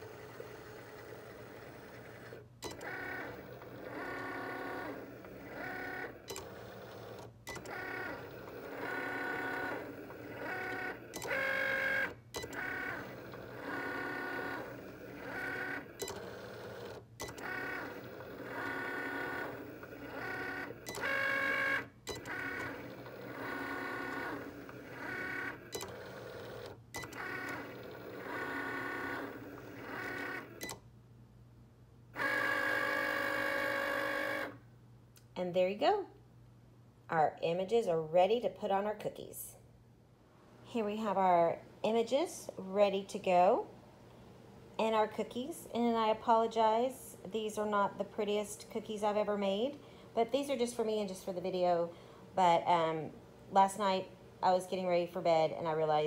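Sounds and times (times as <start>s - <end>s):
cutting machine motors whirring: 0.0s - 30.8s, 32.2s - 34.6s.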